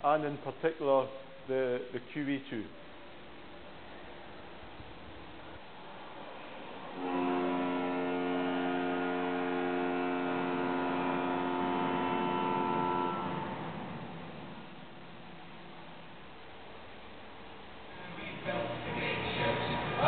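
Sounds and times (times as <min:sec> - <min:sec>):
ship's whistle blast: 0:07.0 - 0:13.8.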